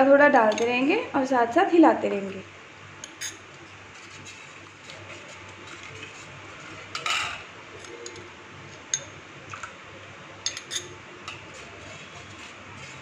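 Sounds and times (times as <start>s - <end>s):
spoon clinking against bowl: 0.4s - 0.8s, 3.0s - 3.4s, 10.4s - 11.0s
utensils clattering: 0.4s - 0.8s, 10.4s - 12.1s.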